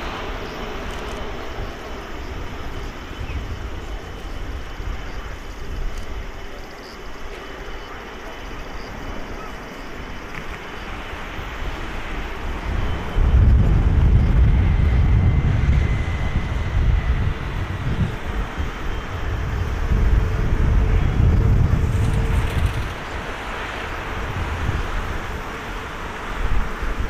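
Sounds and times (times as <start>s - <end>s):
distant jet engine: 0.0s - 27.0s
deep low rumble: 12.7s - 23.0s.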